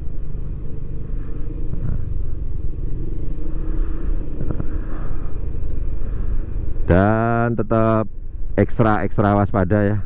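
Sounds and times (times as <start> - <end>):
scooter engine rumbling: 0.0 - 7.0.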